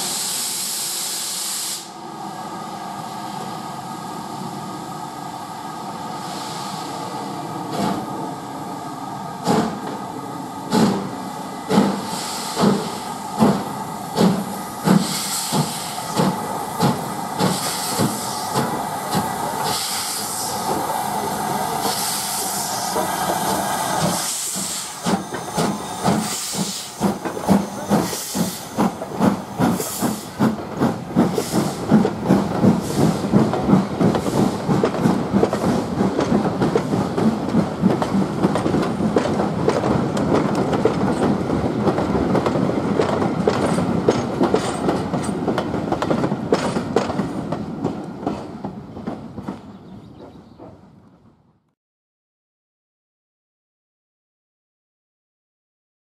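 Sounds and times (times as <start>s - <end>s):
steam hissing: 0.0s - 8.0s, 8.7s - 37.4s
train wheels clattering on rail joints: 9.4s - 10.0s, 10.7s - 22.1s, 22.8s - 51.3s
steam locomotive exhaust beats: 9.4s - 50.8s.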